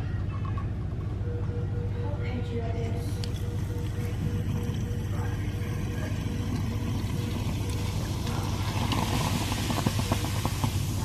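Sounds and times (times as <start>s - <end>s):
steady low hum: 0.0s - 11.0s
bubbles popping: 3.3s - 11.0s.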